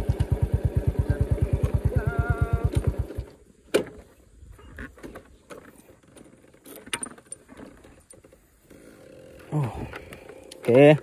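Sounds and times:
motorcycle engine idling: 0.0s - 3.4s.

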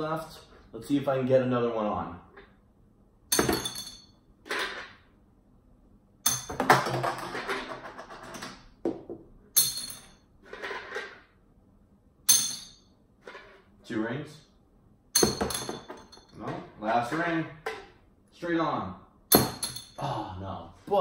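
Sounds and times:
rings clinking on glass bottles: 3.3s - 4.2s, 9.6s - 10.3s, 12.3s - 12.9s, 15.2s - 16.4s, 19.3s - 20.1s.

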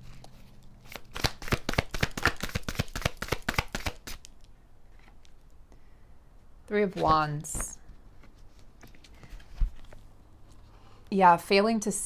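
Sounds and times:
cards being shuffled: 0.0s - 4.3s
cards tapping: 0.9s - 4.2s.

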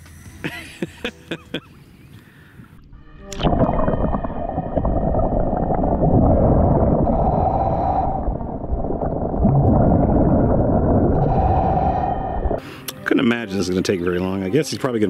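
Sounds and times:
muffled water sloshing and gurgling: 2.8s - 12.6s.

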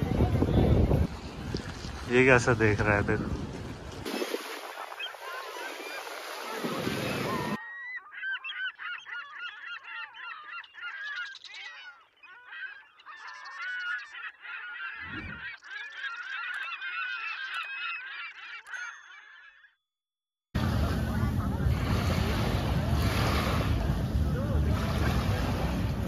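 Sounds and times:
flock of birds calling: 4.5s - 19.8s.

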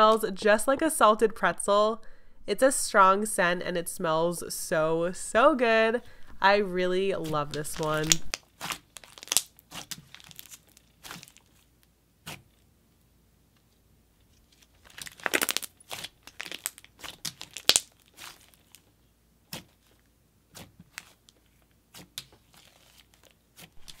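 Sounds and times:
clay slime crackly pops: 7.8s - 12.6s, 14.9s - 24.0s.

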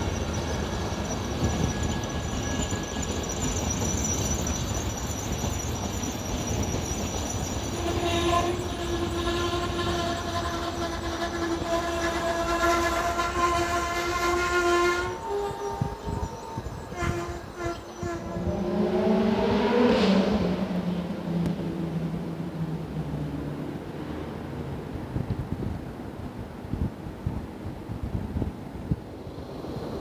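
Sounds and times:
train wheels squealing: 0.0s - 20.4s
train wheels rumbling on rails: 0.0s - 30.0s.

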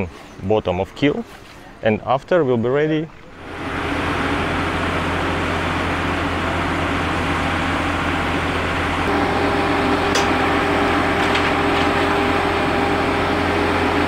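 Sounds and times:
engine and hydraulics humming: 1.1s - 14.0s
high steady whine: 3.4s - 14.0s.

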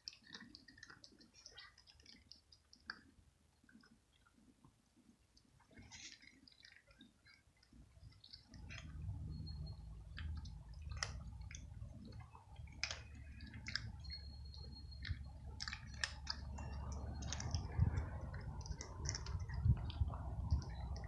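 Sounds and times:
cat crunching dry kibble: 0.0s - 3.1s, 5.7s - 21.0s
low steady rumble: 8.5s - 21.0s.

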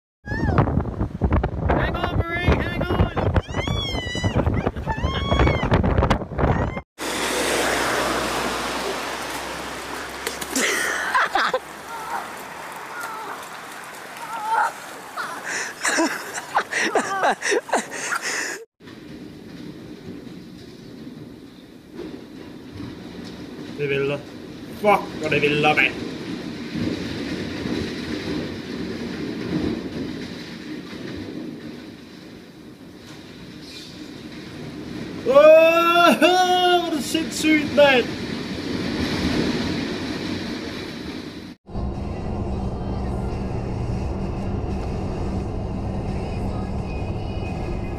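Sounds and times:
wind: 0.2s - 47.9s
water rushing across road: 7.0s - 18.6s, 22.6s - 41.6s
person crying out: 11.9s - 12.3s, 14.3s - 16.0s, 16.6s - 17.7s.

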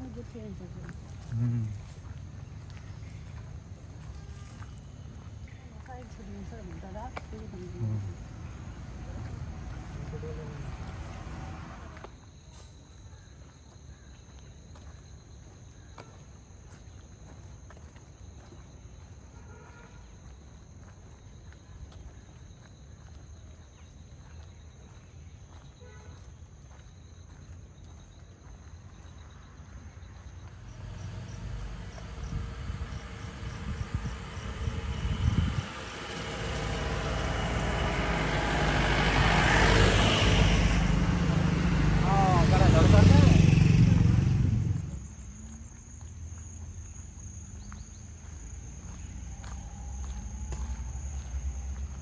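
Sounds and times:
insects chirping: 0.0s - 52.0s
low rumble: 31.0s - 39.3s.

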